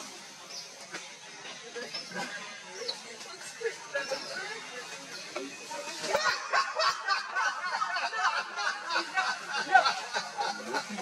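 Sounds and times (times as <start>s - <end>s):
monkeys squeaking and chirping: 1.7s - 6.5s.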